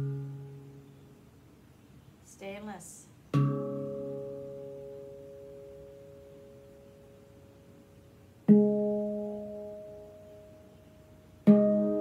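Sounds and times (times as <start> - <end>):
handpan notes ringing: 0.0 - 0.8, 3.3 - 12.0.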